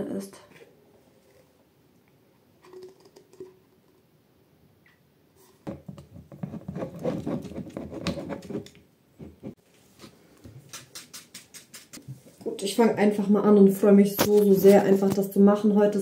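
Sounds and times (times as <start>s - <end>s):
brush scraping and tapping bowl: 5.4s - 12.5s.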